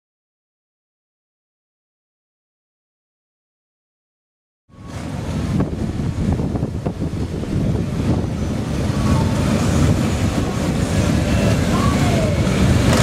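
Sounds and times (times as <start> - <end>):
motorcycle engines running: 4.8 - 13.0.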